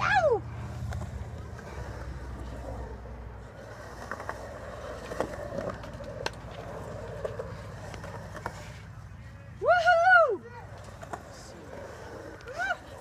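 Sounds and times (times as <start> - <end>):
skateboard wheels rolling on concrete: 0.0 - 13.0
skateboard clicks: 3.6 - 8.8.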